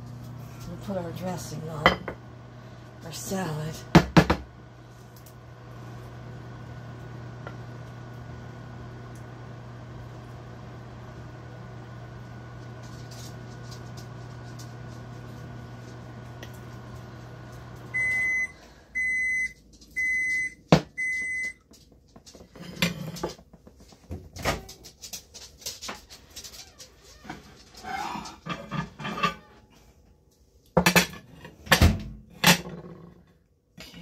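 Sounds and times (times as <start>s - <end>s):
microwave oven humming: 0.0s - 25.2s
microwave beeping: 15.5s - 21.7s.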